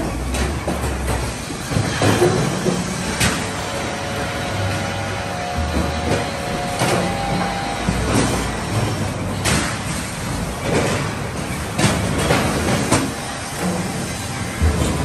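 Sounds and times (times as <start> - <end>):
logs knocking on rollers: 0.0 - 9.8, 10.5 - 15.0
debarking machine running: 0.0 - 11.8.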